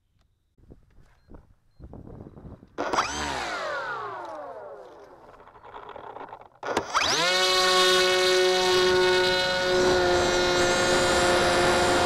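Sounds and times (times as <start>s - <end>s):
electric motor propeller whine: 2.8s - 12.0s.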